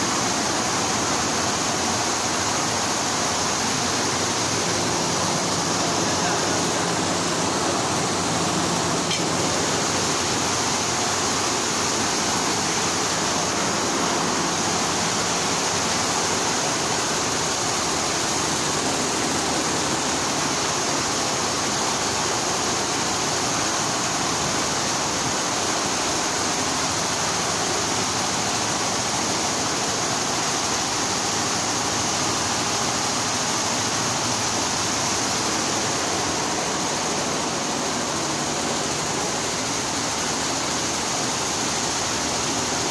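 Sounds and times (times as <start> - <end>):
embroidery machines running: 0.0 - 42.9.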